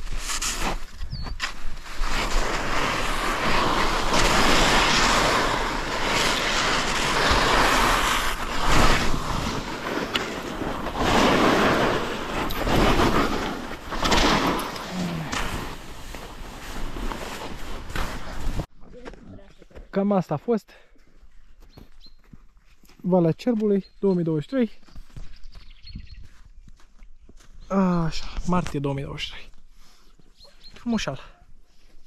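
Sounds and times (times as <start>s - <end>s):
skis sliding over snow: 0.0s - 18.7s
wind on microphone: 25.4s - 26.4s.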